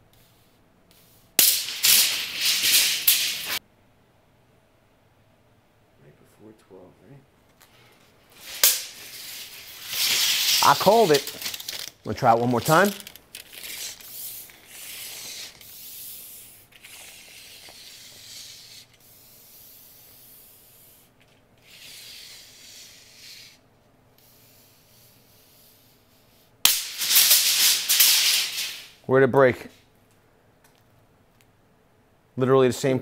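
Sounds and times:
tape measure blade rasping: 1.4 - 3.6, 8.4 - 18.9, 26.7 - 28.9.

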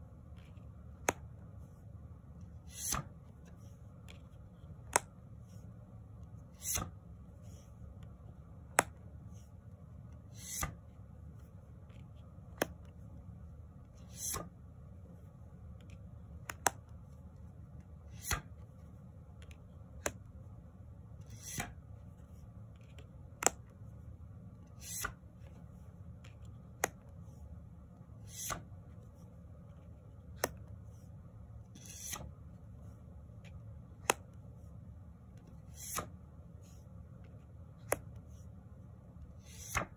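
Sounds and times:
low steady hum: 0.0 - 39.9
cards snapping and sliding: 0.4 - 1.3, 2.6 - 5.2, 6.5 - 7.0, 8.7 - 9.0, 10.3 - 10.8, 11.9 - 12.9, 14.0 - 14.5, 15.8 - 16.9, 18.1 - 18.7, 19.4 - 20.3, 21.2 - 21.8, 22.8 - 23.8, 24.6 - 27.2, 28.2 - 28.7, 30.2 - 30.7, 31.7 - 32.4, 33.4 - 34.4, 35.4 - 36.2, 37.8 - 38.2, 39.4 - 39.9.

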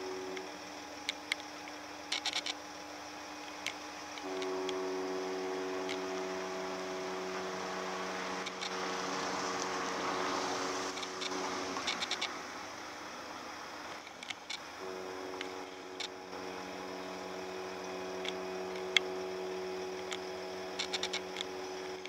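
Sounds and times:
ship horn long blast: 0.0 - 0.6, 4.2 - 13.1, 14.8 - 22.0.

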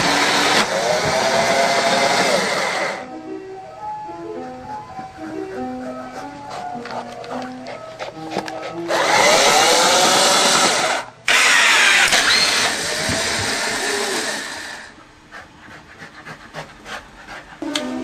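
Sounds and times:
electric motor whirring: 8.9 - 14.9.

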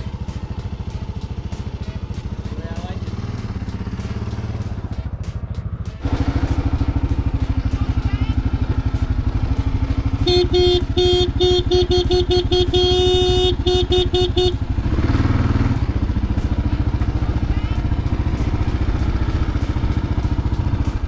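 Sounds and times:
motorcycle engine idling: 0.0 - 21.0
motorcycle horn beeps: 9.8 - 15.0.

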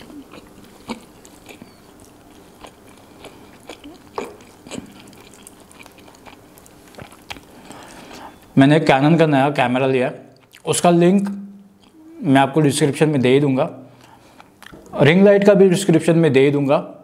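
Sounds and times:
chewing: 0.0 - 8.5
fingers squishing food: 0.0 - 8.5.

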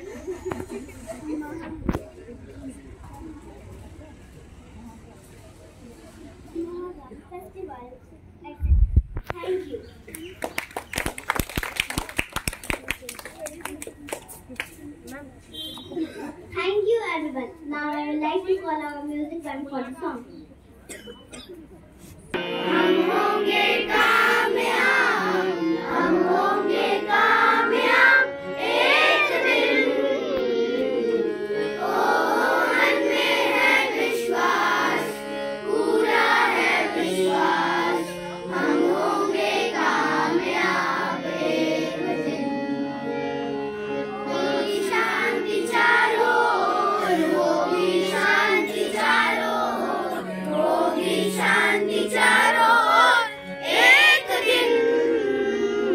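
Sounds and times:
children singing in unison: 22.4 - 42.8, 44.1 - 55.9.

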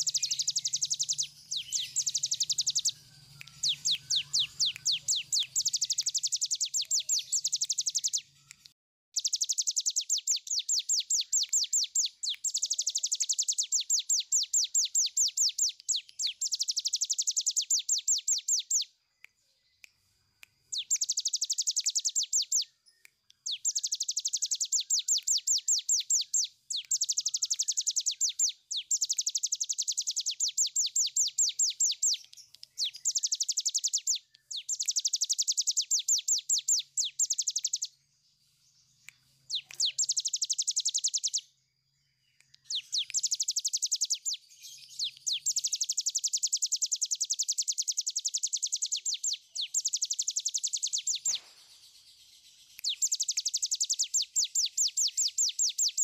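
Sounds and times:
small bird singing rapid high notes: 0.0 - 8.6, 9.2 - 18.9, 20.7 - 38.0, 39.5 - 41.5, 42.5 - 56.0.

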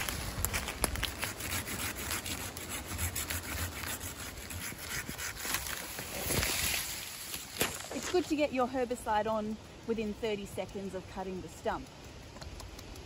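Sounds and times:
hand saw cutting wood: 0.9 - 6.9.

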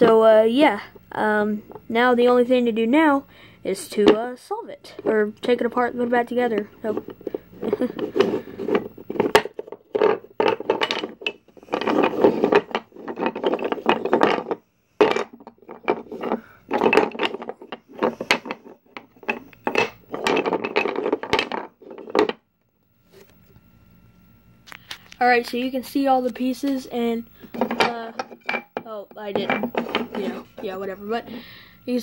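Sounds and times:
wooden pieces sliding and rubbing: 6.6 - 22.4, 27.4 - 28.6, 29.3 - 31.4
wooden pieces clicking and knocking: 6.8 - 22.4, 27.5 - 30.6.

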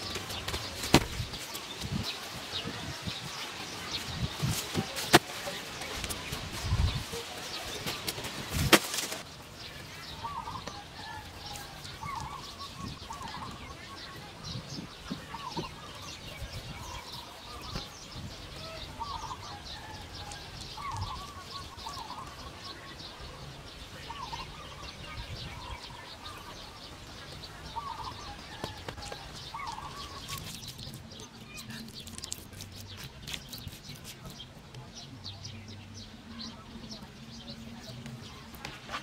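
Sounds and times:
birds chirping: 0.0 - 39.0
stick scratching wet mud: 29.0 - 34.5.

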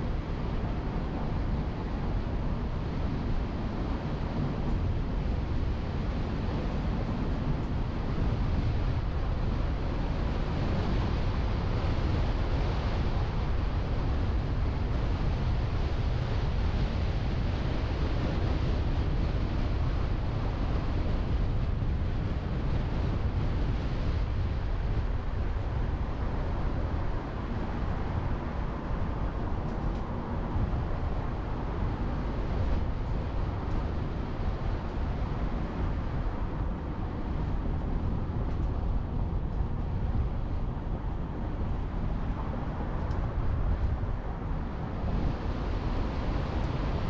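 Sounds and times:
wind buffeting microphone: 0.0 - 47.0.

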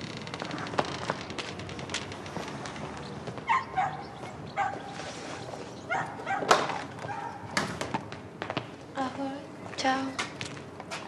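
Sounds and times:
dog barking: 3.5 - 4.9, 5.9 - 7.5.

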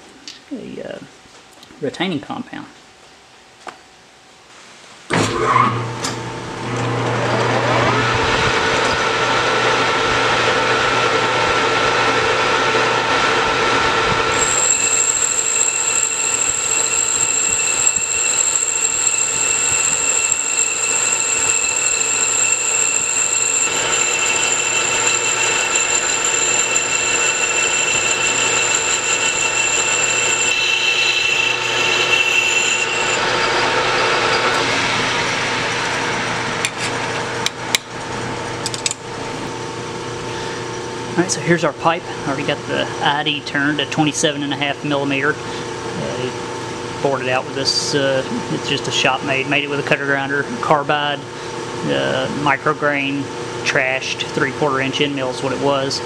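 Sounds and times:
high steady whine: 7.6 - 56.0
metal lathe running: 14.3 - 36.2.

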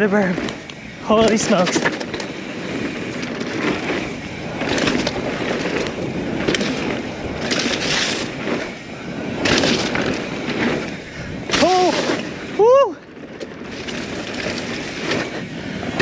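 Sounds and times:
bike clicks and rattles: 0.0 - 16.0
bike tyres hissing over dirt: 0.0 - 16.0
wind rushing on microphone: 0.0 - 16.0.

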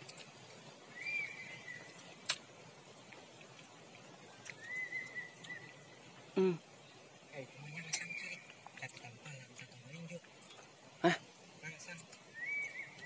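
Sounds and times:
forest ambience: 0.0 - 13.0
high whistled call: 0.9 - 2.1, 4.3 - 6.0, 7.8 - 8.5, 12.3 - 13.0.

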